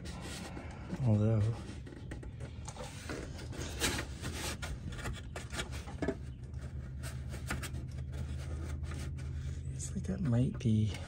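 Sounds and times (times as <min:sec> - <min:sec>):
plastic knocking and rubbing: 0:01.6 - 0:09.4.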